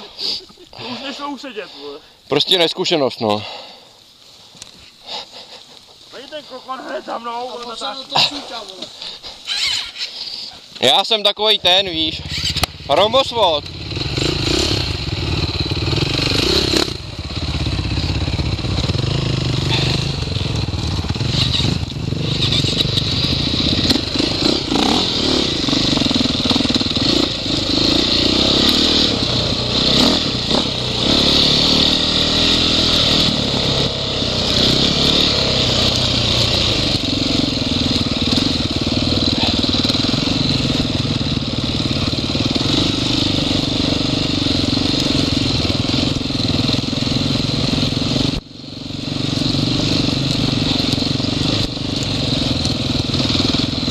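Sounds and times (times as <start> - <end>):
motorcycle engine revving: 10.8 - 53.9.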